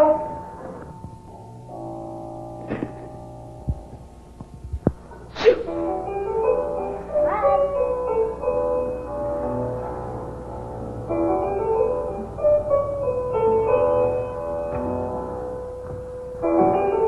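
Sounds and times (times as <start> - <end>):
slow piano melody: 0.0 - 17.0.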